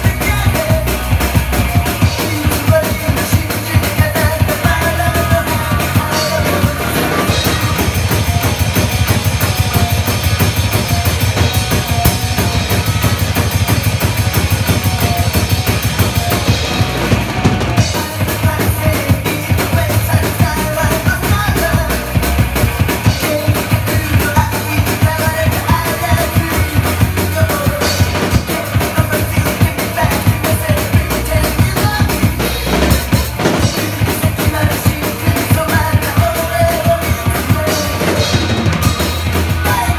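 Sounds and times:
drum kit rock beat: 0.0 - 39.9
rock music backing track: 0.0 - 39.9.

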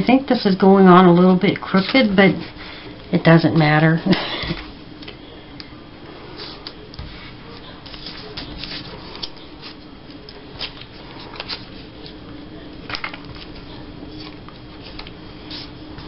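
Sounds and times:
paper rustling and crinkling: 1.6 - 2.6, 6.3 - 12.3, 12.9 - 16.0.

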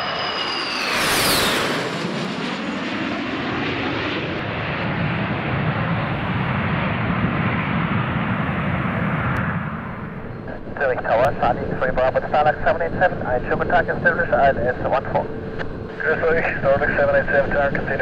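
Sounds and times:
aircraft engine whine: 0.0 - 18.0
low engine rumble: 9.7 - 18.0.

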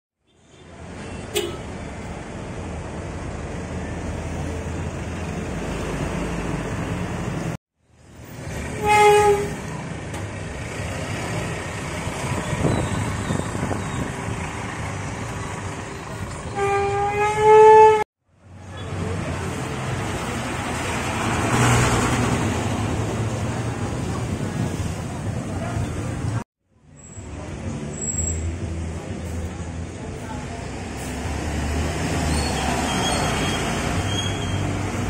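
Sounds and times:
diesel buses in traffic: 0.2 - 35.0
vehicle horn: 0.3 - 1.7, 8.8 - 9.6, 16.5 - 18.0.

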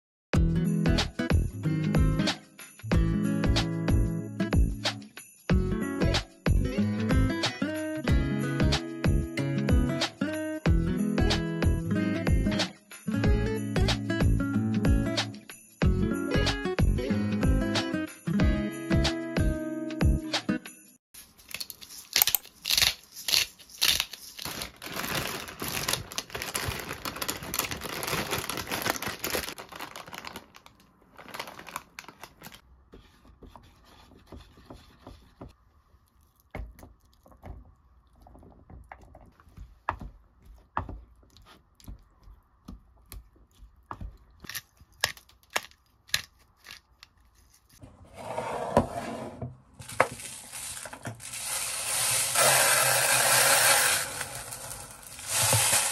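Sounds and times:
dry rice pouring into a tub: 49.8 - 55.9.

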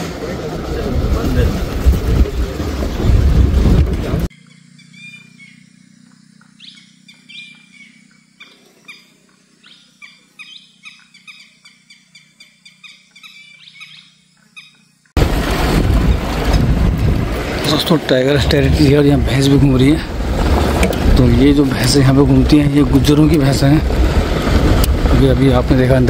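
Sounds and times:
loud vehicle noise: 0.0 - 9.5, 15.1 - 26.0
birds chirping: 4.3 - 15.2.

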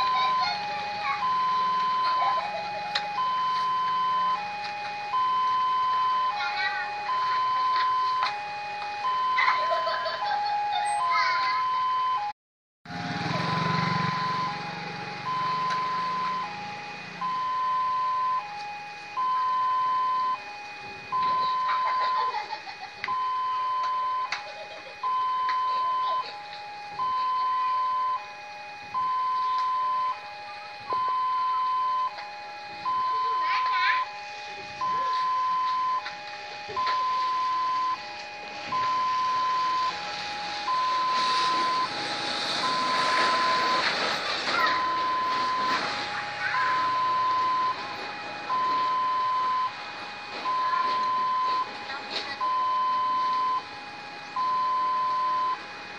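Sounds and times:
level crossing two-tone alarm: 0.0 - 55.9
low engine rumble: 12.9 - 55.9
rushing noise: 39.7 - 48.7.

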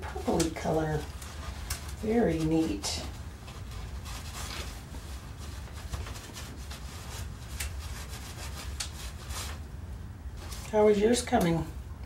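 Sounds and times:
paper napkin rubbing on page: 0.1 - 9.6.

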